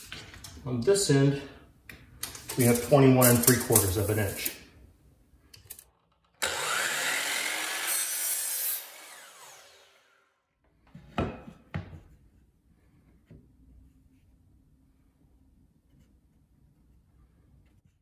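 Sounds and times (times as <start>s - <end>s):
miter saw cutting wood: 6.4s - 10.4s.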